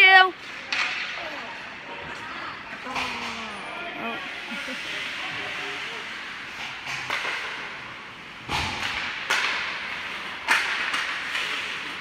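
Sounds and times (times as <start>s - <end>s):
hockey sticks and puck cracking: 0.4s - 3.5s, 4.8s - 12.0s.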